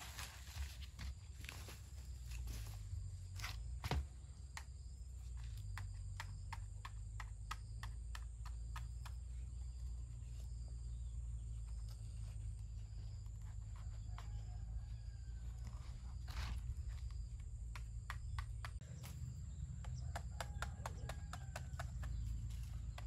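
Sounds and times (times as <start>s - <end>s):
knife chopping fruit rind: 19.8s - 23.0s.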